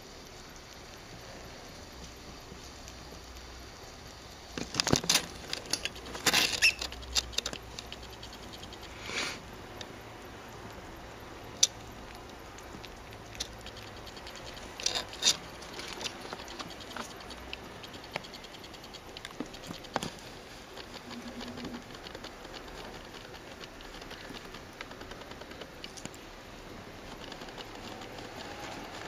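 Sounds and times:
faint clicks and scratches: 0.0s - 29.0s
small claws pattering on fabric: 11.6s - 29.0s.

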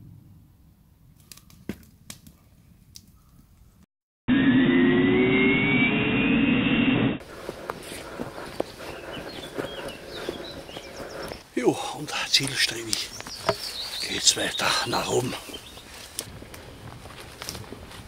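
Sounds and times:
whoosh with rising tones: 4.3s - 7.2s.

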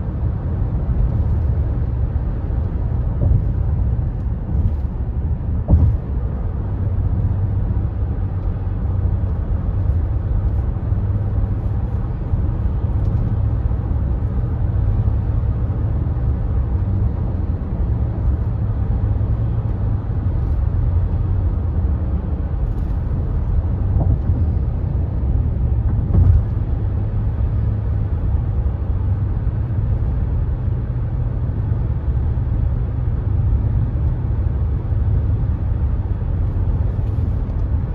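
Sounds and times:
tyre and road rumble: 0.0s - 37.9s
car thump on bridge: 3.0s - 4.8s, 5.4s - 6.4s, 23.8s - 24.5s, 25.8s - 26.9s.

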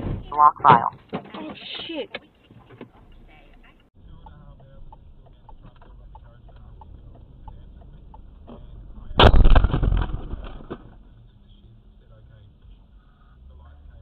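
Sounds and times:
car rumbling in motion: 0.0s - 14.0s
soft ticks: 4.2s - 8.3s
car crash: 8.4s - 11.1s.

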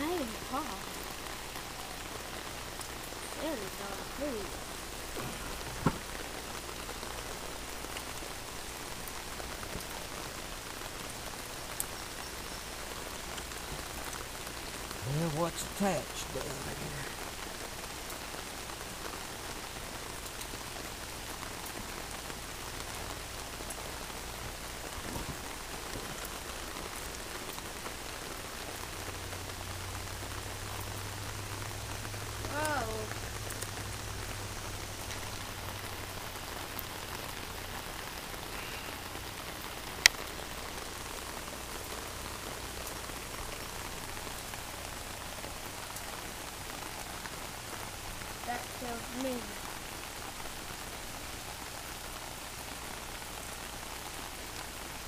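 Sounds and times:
rain falling on pavement: 0.0s - 55.0s
brief voice: 15.0s - 17.1s.

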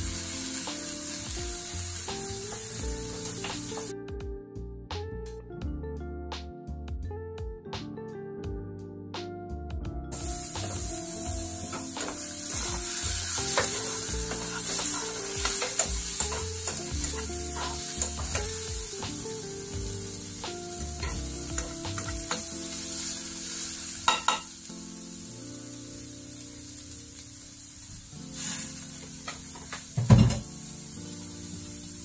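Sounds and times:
vegetables sizzling in a frying pan: 0.0s - 3.9s, 10.1s - 32.0s
spatula scraping and tapping a pan: 11.6s - 18.8s, 21.0s - 22.5s, 24.1s - 24.5s.

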